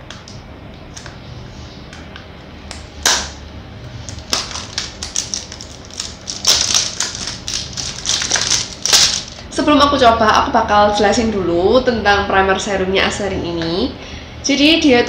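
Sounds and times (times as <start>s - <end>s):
plastic shrink-wrap crinkling: 4.1s - 9.4s.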